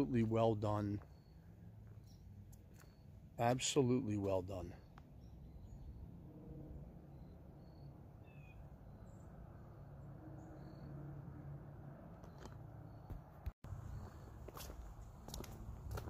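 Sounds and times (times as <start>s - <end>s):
small birds chirping: 0.0s - 6.1s, 7.1s - 9.4s, 12.2s - 15.5s.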